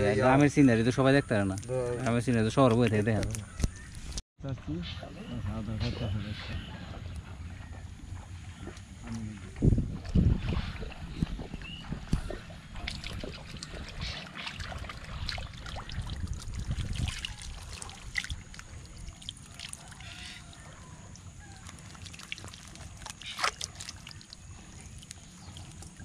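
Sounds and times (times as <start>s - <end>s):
water splashing and trickling: 0.0s - 26.0s
bamboo clicks and knocks: 1.6s - 4.2s.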